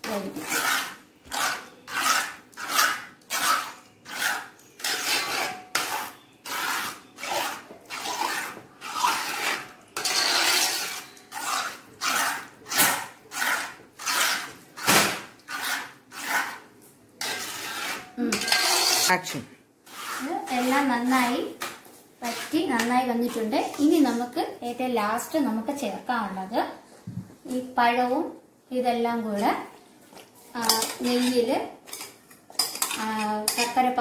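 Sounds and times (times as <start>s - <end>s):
metal spoon scraping metal pot: 0.0s - 14.6s, 15.4s - 16.6s, 17.2s - 19.3s, 19.9s - 21.4s, 22.2s - 24.2s, 30.6s - 34.0s.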